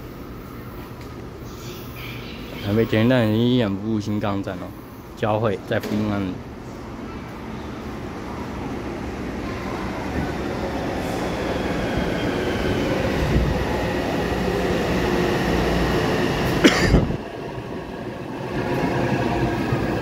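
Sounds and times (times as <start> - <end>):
train wheels rumbling on rails: 9.8 - 20.0.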